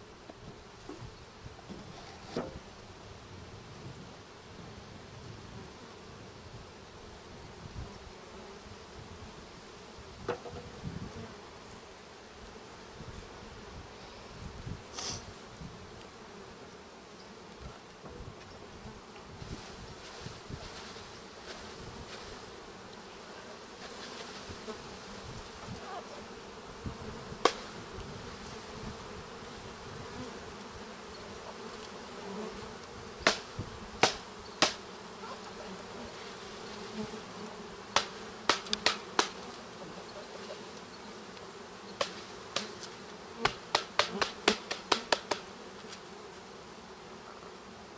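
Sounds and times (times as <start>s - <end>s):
bees buzzing: 5.7s - 47.9s
sharp knocks: 34.0s - 34.8s, 43.4s - 45.4s.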